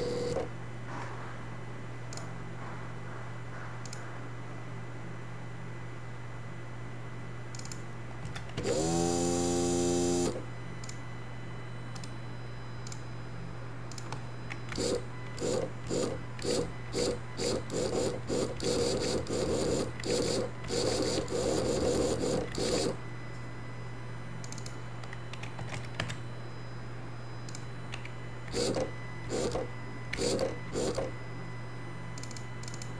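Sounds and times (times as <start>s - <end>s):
steady low hum: 0.0s - 32.9s
short motor whirring bursts: 14.7s - 23.0s, 28.5s - 31.1s.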